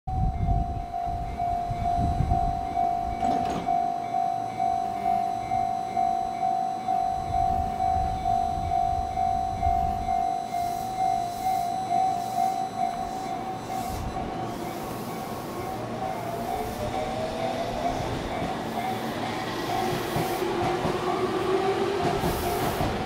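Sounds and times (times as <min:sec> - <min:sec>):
level crossing electronic bell: 0:00.3 - 0:14.3
train rumble: 0:06.9 - 0:23.0.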